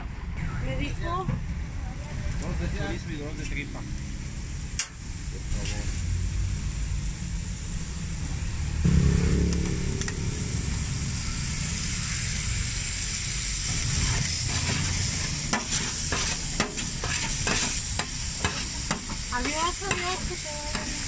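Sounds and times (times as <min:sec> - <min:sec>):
meat sizzling on a griddle: 0:02.6 - 0:09.7, 0:10.5 - 0:21.0
low rumble: 0:03.4 - 0:15.5
metal spatula scraping griddle: 0:13.8 - 0:21.0.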